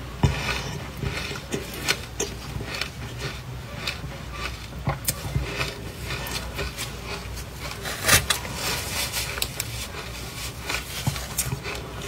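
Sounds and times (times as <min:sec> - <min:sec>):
crunching and chewing ice: 0:00.0 - 0:12.0.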